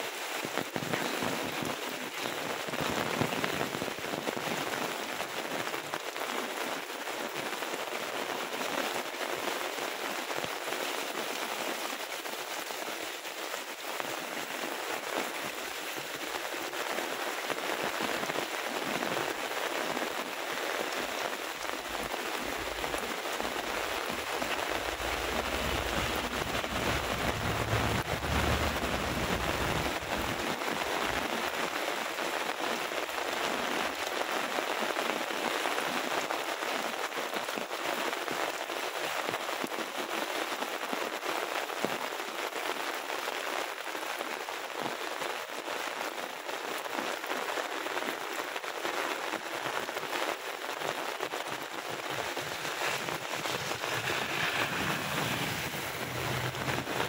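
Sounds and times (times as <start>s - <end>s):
heavy rain: 0.0s - 57.0s
low rumble: 24.7s - 30.4s, 52.9s - 57.0s.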